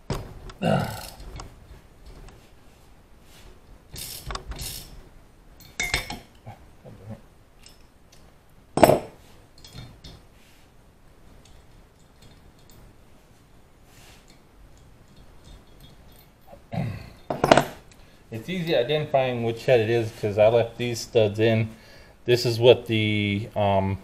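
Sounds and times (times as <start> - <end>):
metal hand tools clinking: 5.6 - 6.4.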